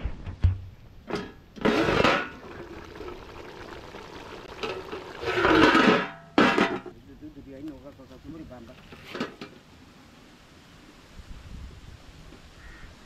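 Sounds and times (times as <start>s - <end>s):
water pouring into a pot: 1.7s - 6.0s.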